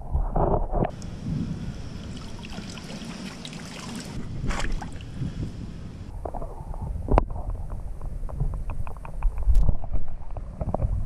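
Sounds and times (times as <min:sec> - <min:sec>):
muffled underwater sloshing: 0:01.0 - 0:05.5.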